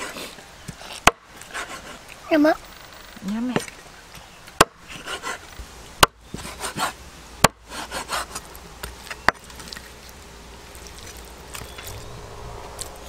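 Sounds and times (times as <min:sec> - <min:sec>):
meat rubbing: 0:00.0 - 0:02.2, 0:07.6 - 0:13.0.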